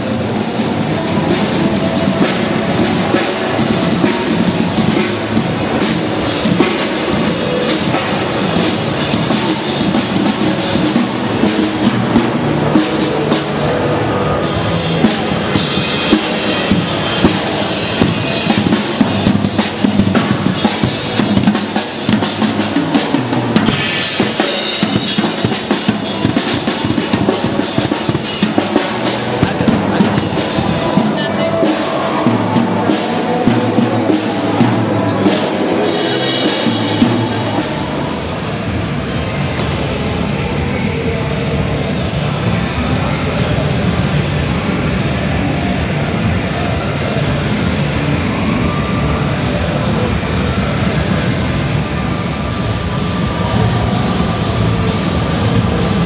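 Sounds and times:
drum-driven music: 0.0 - 40.6.

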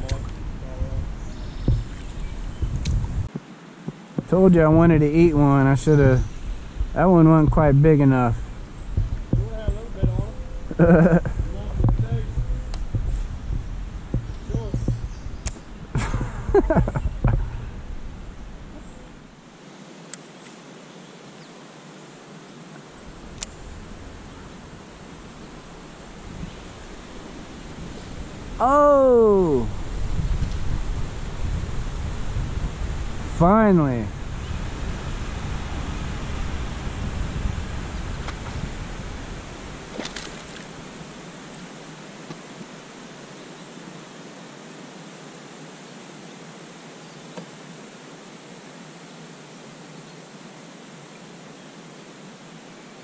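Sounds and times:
wind rumble on microphone: 0.0 - 19.3, 23.0 - 41.3
outdoor ambience hiss: 0.0 - 53.0
faint clicks: 11.8 - 13.1, 14.1 - 15.7
sharp click: 14.2 - 15.6.

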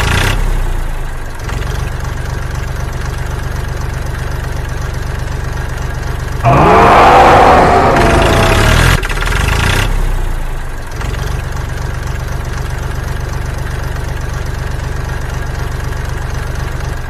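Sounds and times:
tractor engine idling: 0.0 - 17.0
cartoon snoring effect: 6.4 - 8.8.

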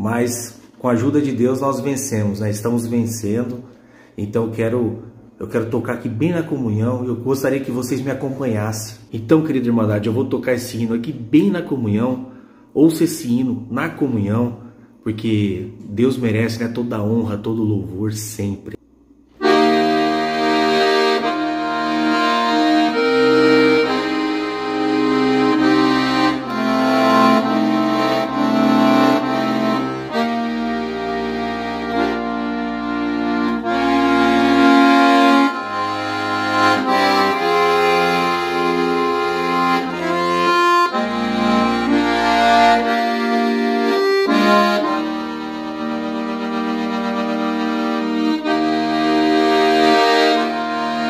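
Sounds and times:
accordion playing slow hymn: 19.3 - 51.0.

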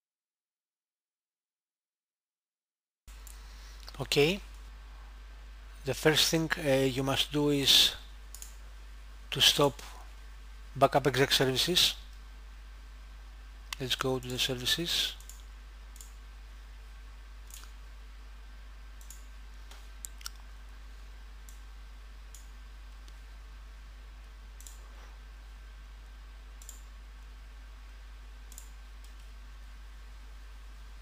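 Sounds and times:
steady low hum: 3.1 - 31.0
computer mouse clicking: 8.3 - 8.6, 15.2 - 16.2, 17.4 - 17.8, 19.0 - 20.4, 24.6 - 24.9, 26.6 - 26.9, 28.5 - 29.3.

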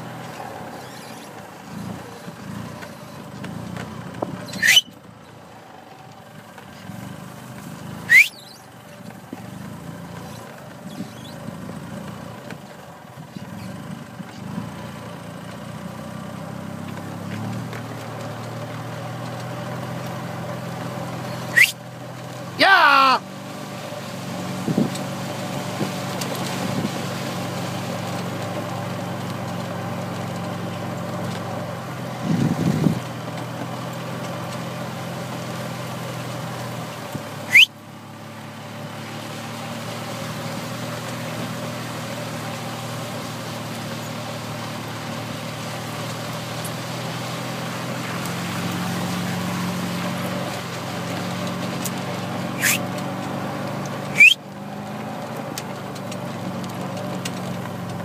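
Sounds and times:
golf cart motor running: 0.0 - 58.0
sharp rising high squeak: 4.4 - 5.0, 8.0 - 8.7, 21.4 - 21.8, 37.5 - 37.7, 52.6 - 52.9, 54.1 - 54.4.

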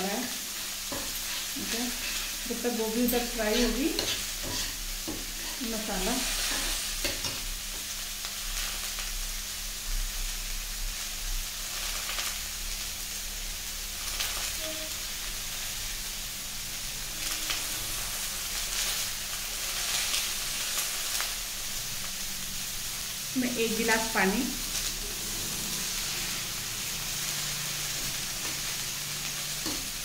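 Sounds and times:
food sizzling in hot oil: 0.0 - 30.0
spatula scraping: 0.9 - 2.5, 3.2 - 5.7.

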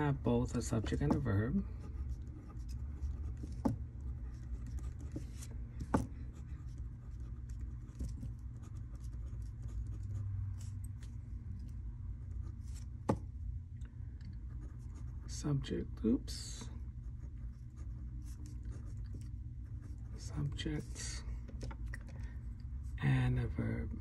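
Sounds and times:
pen scratching on paper: 0.5 - 13.0, 14.4 - 15.3, 17.0 - 21.0.

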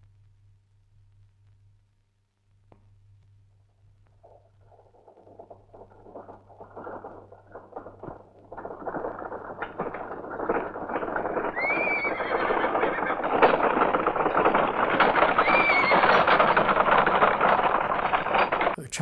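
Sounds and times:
horse hoofbeats galloping: 4.0 - 18.8
horse neighing: 11.5 - 13.4, 15.4 - 16.3.

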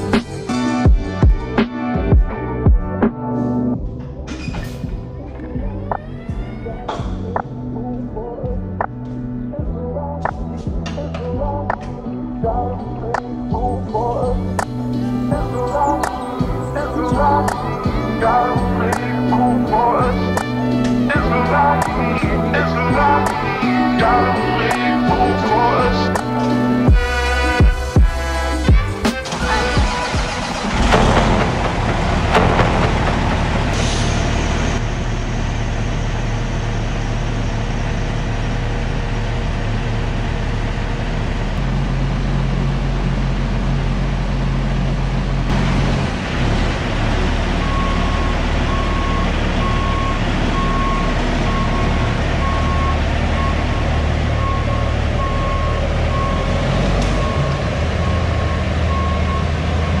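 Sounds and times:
loud diesel truck engine: 3.5 - 60.0
reversing alarm beeping: 47.4 - 60.0.

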